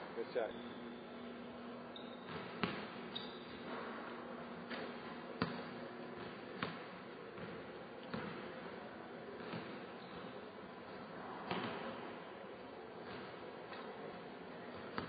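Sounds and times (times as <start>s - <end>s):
basketball bouncing on hardwood floor: 2.2s - 2.9s, 4.7s - 6.8s, 7.4s - 8.5s.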